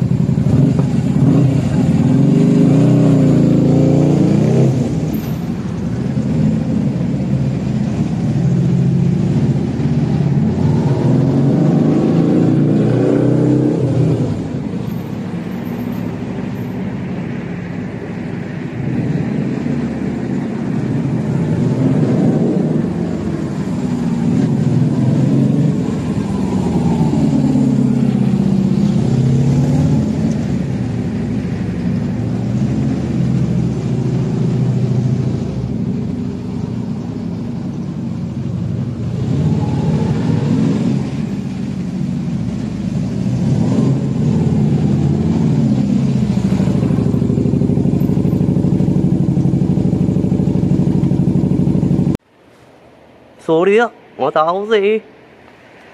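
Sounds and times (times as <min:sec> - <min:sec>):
motorcycle engine revving: 0:00.0 - 0:14.6, 0:38.8 - 0:52.2.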